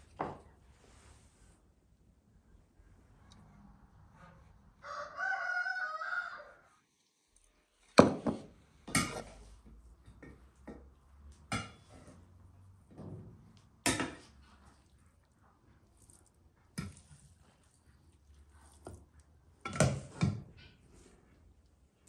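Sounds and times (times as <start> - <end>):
rooster crowing: 4.8 - 6.8.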